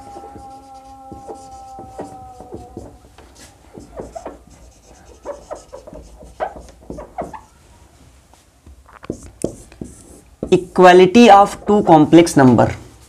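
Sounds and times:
marker squeaking on whiteboard: 0.0 - 7.9, 8.9 - 10.6.

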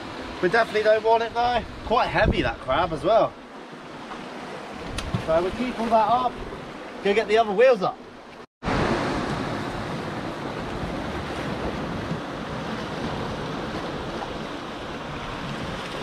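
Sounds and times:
wind on microphone: 1.4 - 3.0, 8.7 - 16.0
waves washing against rocks: 4.0 - 7.3, 8.6 - 16.0.

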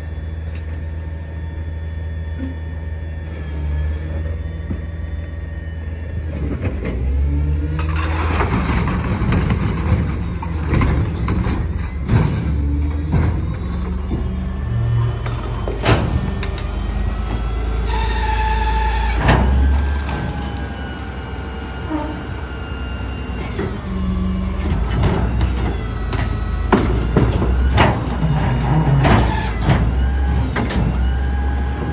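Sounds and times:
garbage truck engine rumbling: 0.0 - 31.9
hydraulics whining: 0.0 - 31.9.

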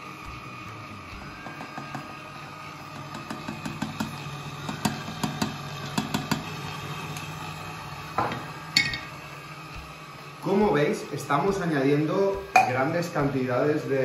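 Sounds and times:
stand mixer motor hum: 0.0 - 12.5.

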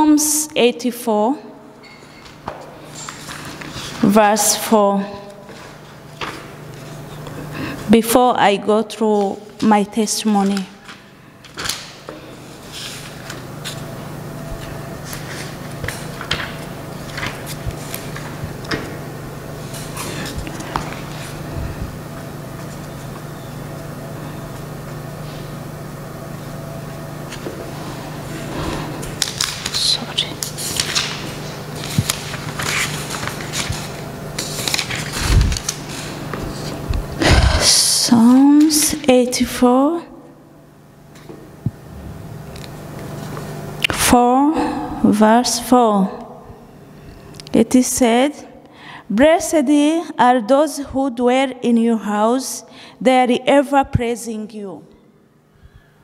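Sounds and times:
steady low hum: 0.0 - 56.0
paper rustling: 14.6 - 18.8, 29.1 - 36.8.

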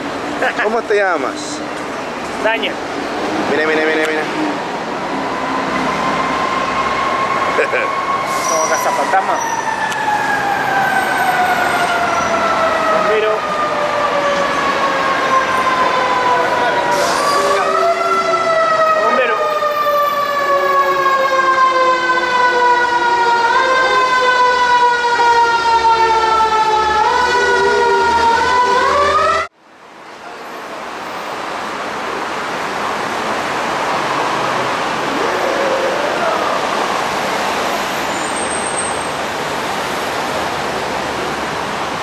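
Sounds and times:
city street traffic: 0.0 - 42.0
siren wailing: 5.2 - 29.5.

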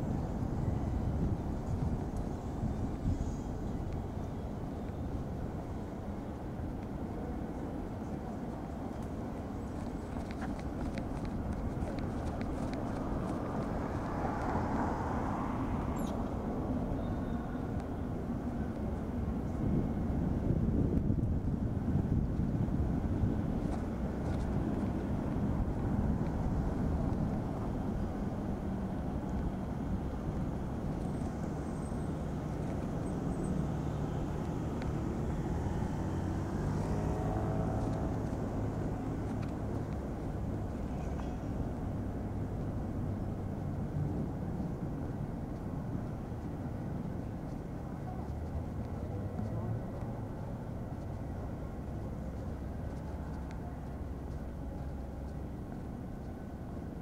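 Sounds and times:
city street ambience: 0.0 - 57.0
distant traffic: 0.0 - 57.0
car passing close by: 13.0 - 16.9, 33.0 - 42.8.

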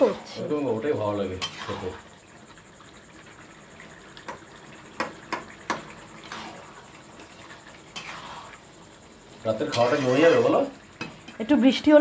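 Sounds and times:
liquid sloshing in a pan: 1.1 - 11.4.

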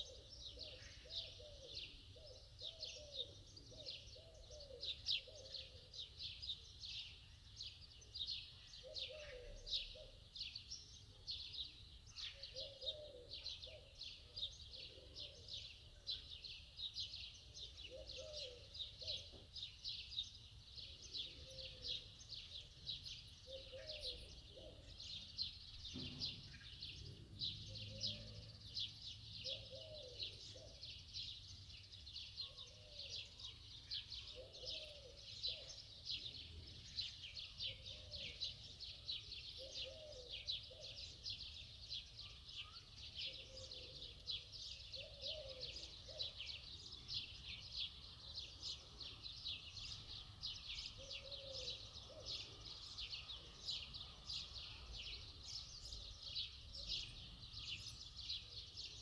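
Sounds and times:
small birds chirping: 0.0 - 59.0
lower curved bird call: 50.0 - 56.0.

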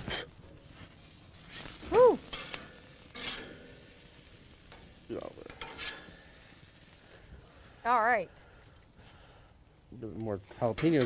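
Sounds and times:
metal spatula scraping grill grate: 0.0 - 7.6, 10.0 - 11.0
faint sizzle: 0.0 - 11.0
person exclaiming whew: 1.8 - 2.3.

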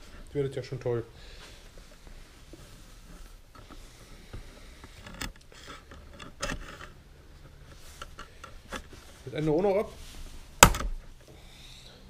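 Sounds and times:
handling and scraping: 0.0 - 11.3.

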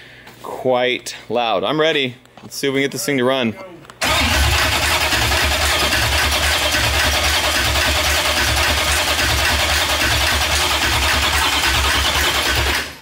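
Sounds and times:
car engine cranking: 4.0 - 13.0.

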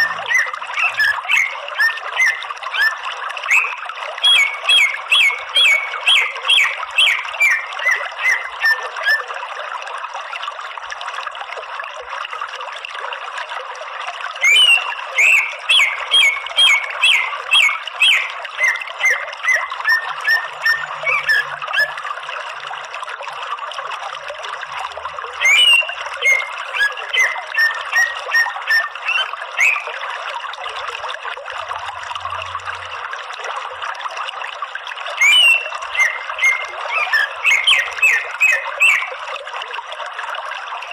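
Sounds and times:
bird calling sharp notes: 0.0 - 9.3, 14.4 - 22.0, 25.4 - 30.0, 35.2 - 39.2.

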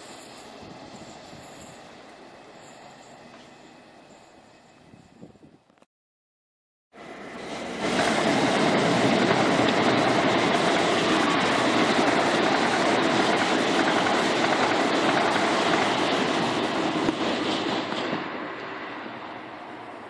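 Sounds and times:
train wheels on rail: 0.0 - 5.7, 7.0 - 20.0
clickety-clack over rail joints: 7.4 - 19.2.

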